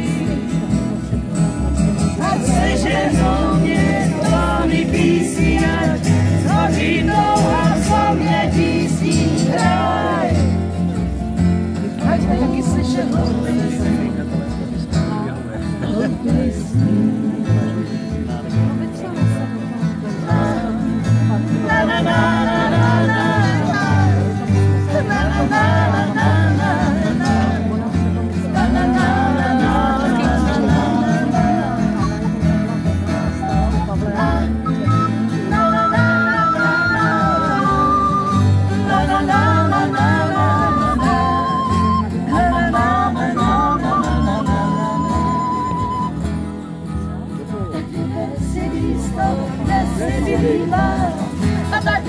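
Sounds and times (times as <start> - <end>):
person singing: 0.0 - 10.7, 11.8 - 14.6, 20.0 - 46.2, 48.0 - 52.0
strummed acoustic guitar: 0.0 - 52.0
walking double bass: 0.0 - 52.0.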